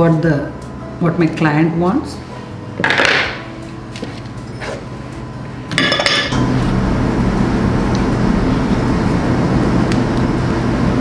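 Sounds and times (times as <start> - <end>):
low mechanical hum: 0.0 - 11.0
utensils clinking against bowl: 5.7 - 6.4.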